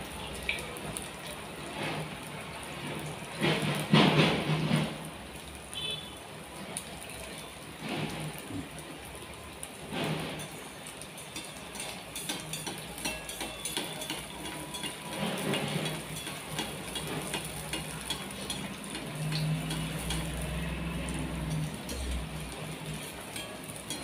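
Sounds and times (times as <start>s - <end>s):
deep-frying sizzle and crackling: 0.0s - 24.0s
slotted spoon moving in pot: 11.4s - 20.5s.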